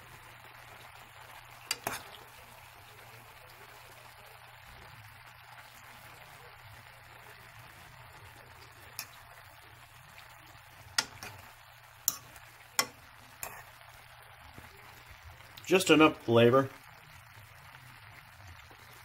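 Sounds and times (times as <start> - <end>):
faint steady hiss: 0.0 - 19.0
fork clinking against metal pot: 1.7 - 2.1, 8.9 - 9.2, 11.0 - 11.4, 12.0 - 13.7.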